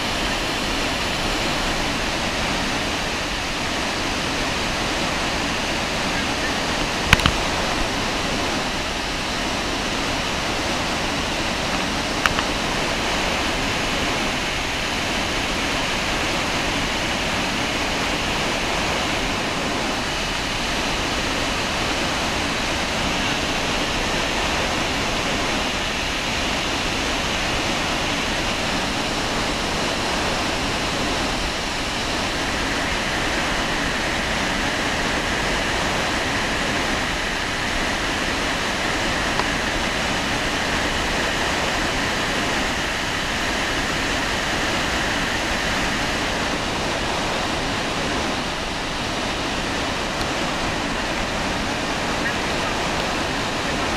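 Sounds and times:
waterfall roaring: 0.0 - 53.9
small click: 7.1 - 7.4, 12.2 - 12.5.

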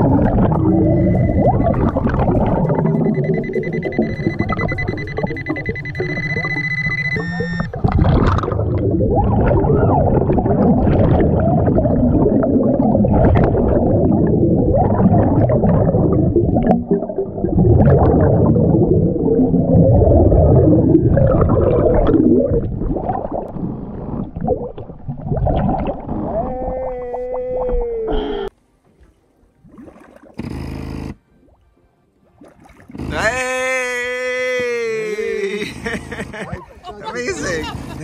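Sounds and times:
underwater gurgling and bubbling: 0.0 - 28.6.

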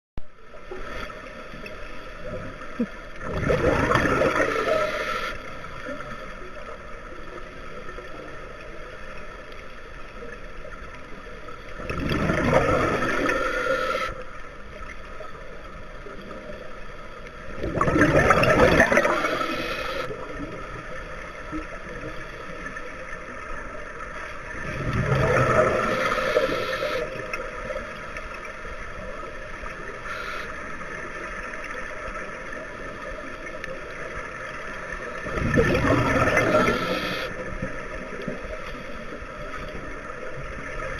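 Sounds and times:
steady low hiss: 25.6 - 35.2.

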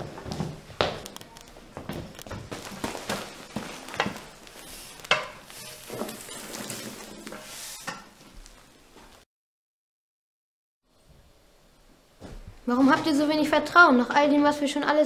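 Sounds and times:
flames crackling: 1.0 - 9.2.

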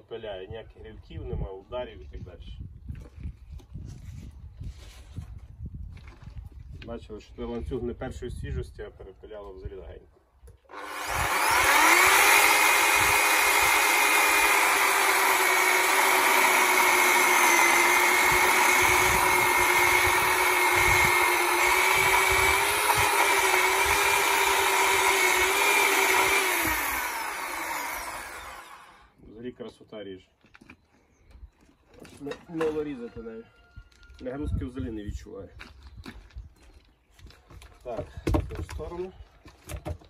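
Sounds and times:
electric chainsaw cutting log: 10.7 - 29.2.

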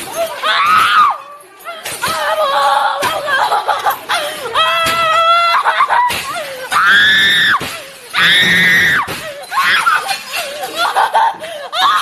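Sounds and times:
person screaming and crying out: 4.6 - 7.6.

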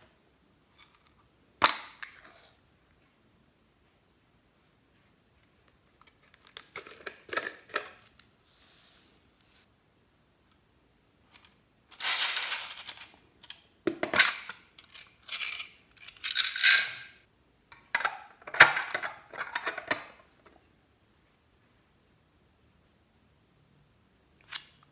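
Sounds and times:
plastic containers clattering: 6.5 - 8.1, 17.8 - 20.4.

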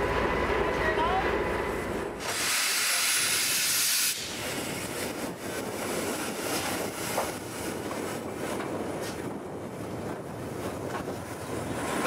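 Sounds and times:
steam hissing from locomotive: 2.2 - 7.4
wind on microphone: 3.2 - 12.0.

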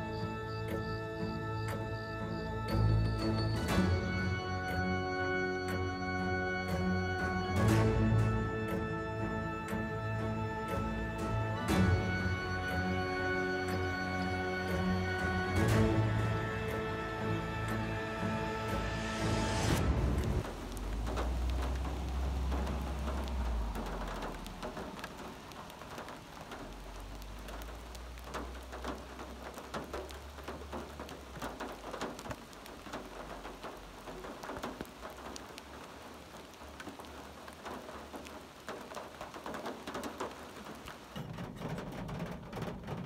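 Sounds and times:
rain falling in forest: 0.0 - 43.0
raindrops tapping close by: 0.0 - 43.0
low rumble: 19.7 - 25.1.

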